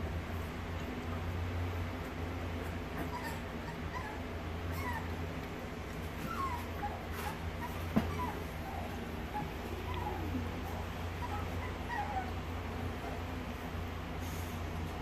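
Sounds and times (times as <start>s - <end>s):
steady low hum: 0.0s - 15.0s
puppy whimpering: 2.6s - 13.4s.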